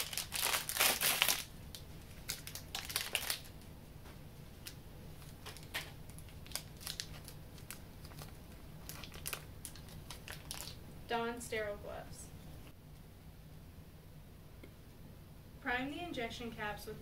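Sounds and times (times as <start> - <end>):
packaging crinkling and rustling: 0.0 - 3.6, 4.6 - 10.8.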